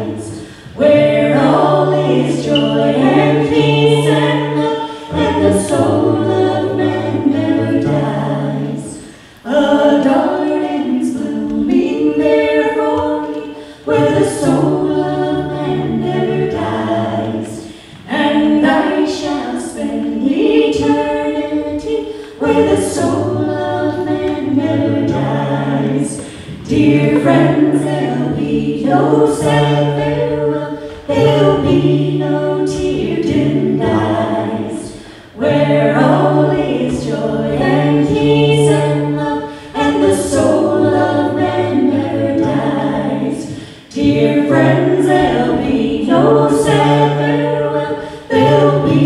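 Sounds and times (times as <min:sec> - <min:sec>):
singers in close harmony: 0:00.0 - 0:49.0.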